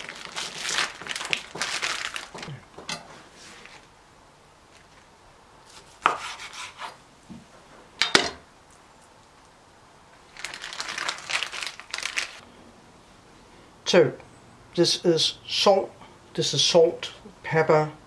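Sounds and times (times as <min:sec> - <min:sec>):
plastic rustling and crinkling: 0:00.0 - 0:03.9, 0:10.2 - 0:12.4.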